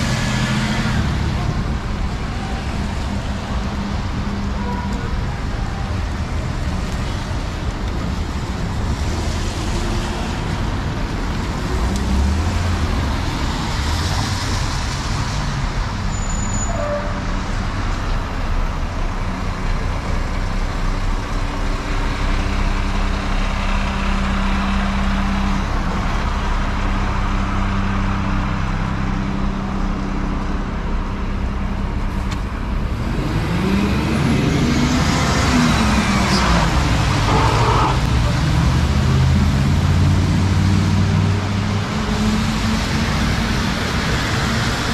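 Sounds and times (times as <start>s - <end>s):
cars and trucks passing: 0.0s - 44.9s
heavy truck engine running: 17.3s - 44.9s.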